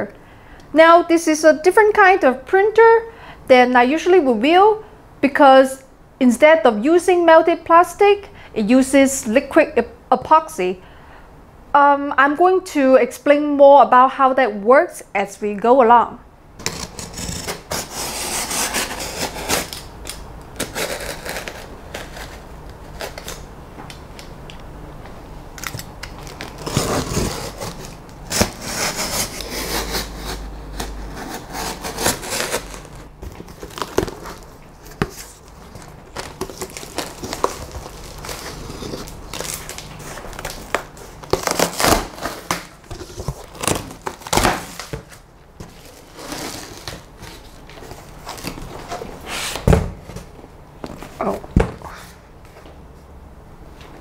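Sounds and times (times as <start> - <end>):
knife slitting packing tape: 16.6 - 23.5, 25.6 - 35.3, 36.2 - 45.0
cardboard and foam crinkling: 25.7 - 51.4.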